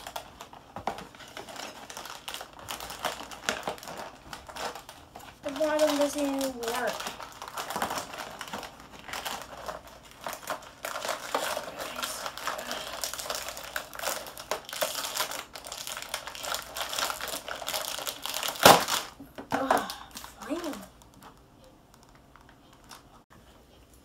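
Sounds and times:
cardboard ripping: 0.0 - 19.1
cardboard and plastic crinkling: 0.0 - 23.2.

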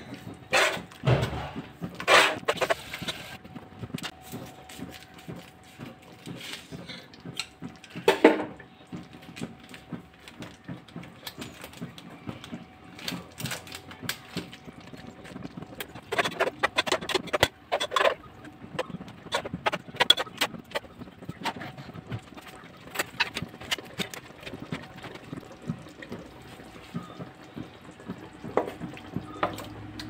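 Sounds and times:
metal spoon scraping a pot: 16.0 - 18.2.

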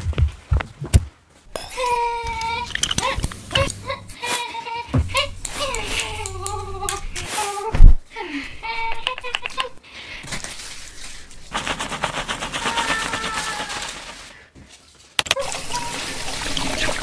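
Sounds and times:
shower water spraying: 10.5 - 14.3, 15.4 - 17.0
shampoo lathering in hair: 10.5 - 14.4, 15.4 - 17.0.

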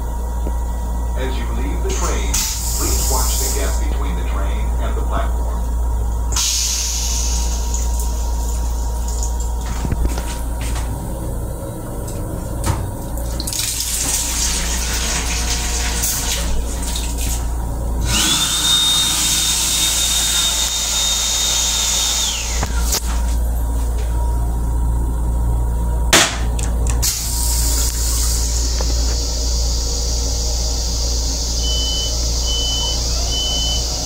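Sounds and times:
steady low rumble: 0.0 - 14.8, 16.3 - 18.3, 22.3 - 31.6
hand dryer whine: 1.2 - 5.6, 6.3 - 24.2, 26.3 - 34.0
faucet running into basin: 6.4 - 10.3, 13.1 - 21.3.

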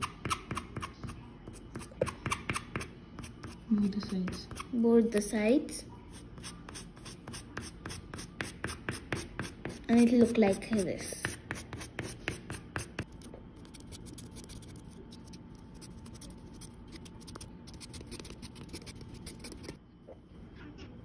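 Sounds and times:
metal fork scratching on paper: 13.6 - 19.8.

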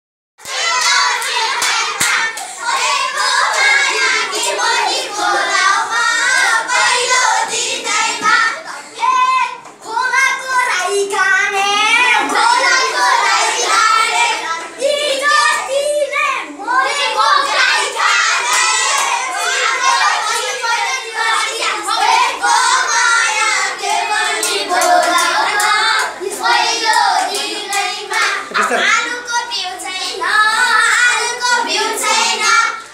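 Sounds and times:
hands clapping along: 0.4 - 2.9, 24.4 - 26.2, 26.9 - 28.4
children singing folk song: 0.4 - 32.9.

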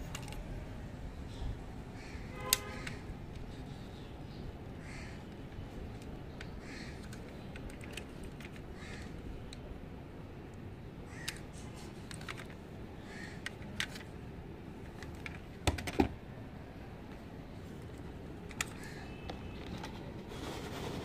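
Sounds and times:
bird calling: 3.6 - 5.4, 6.4 - 7.5
toy car clicks and taps: 5.5 - 9.1.

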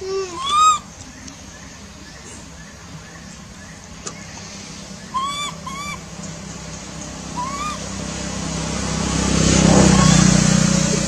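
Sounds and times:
baby monkey coo calls: 0.0 - 1.3, 5.0 - 6.1, 7.4 - 7.9.

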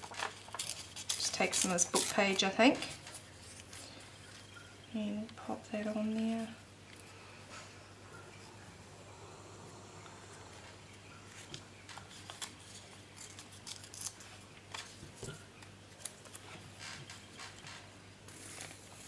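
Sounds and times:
paper rustling and clicks: 0.0 - 3.8, 11.9 - 19.0.

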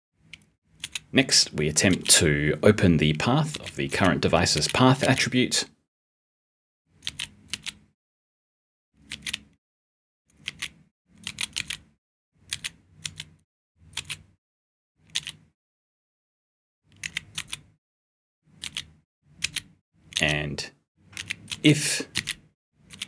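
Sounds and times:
keyboard keys clicking: 21.2 - 23.0.

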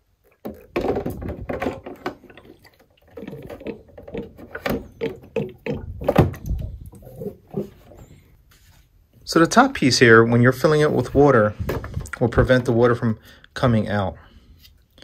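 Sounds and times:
plastic tank knocking and scraping: 0.4 - 8.0, 11.0 - 12.8.

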